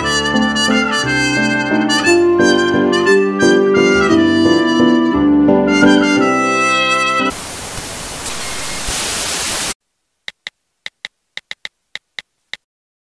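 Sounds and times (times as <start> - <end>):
static hiss: 7.3 - 12.6
quick clicks: 10.3 - 12.7.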